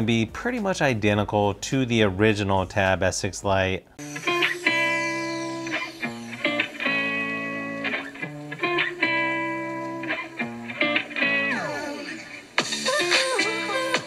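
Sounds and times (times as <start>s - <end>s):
guitar music from speakers: 4.0s - 14.0s.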